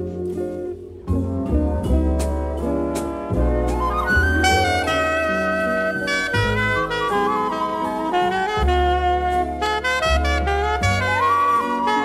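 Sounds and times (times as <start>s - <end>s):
bass line: 1.1s - 12.0s
saxophones and brass chords: 2.6s - 12.0s.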